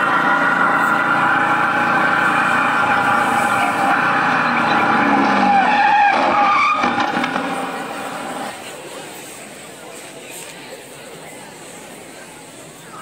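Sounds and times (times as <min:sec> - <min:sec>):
car speeding with tyres skidding: 0:00.0 - 0:08.6.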